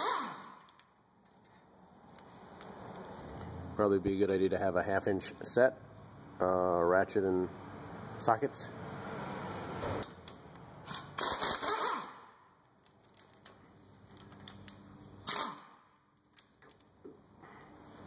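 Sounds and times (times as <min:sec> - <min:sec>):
pneumatic impact wrench hammering: 0:00.0 - 0:00.8, 0:10.8 - 0:12.4, 0:15.2 - 0:15.9.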